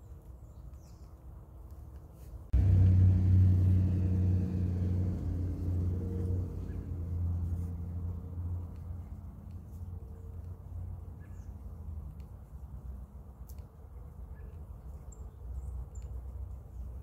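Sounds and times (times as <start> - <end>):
quiet outdoor rumble: 0.1 - 17.0
low steady engine hum: 2.5 - 13.4.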